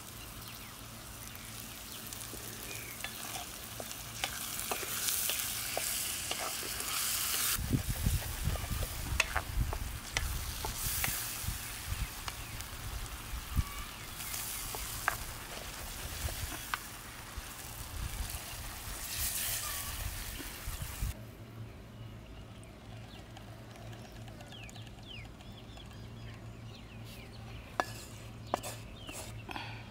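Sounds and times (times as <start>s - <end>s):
vegetables sizzling in hot oil: 0.0s - 21.2s
spatula scraping a pan: 2.1s - 11.4s, 13.8s - 17.4s, 27.8s - 29.4s.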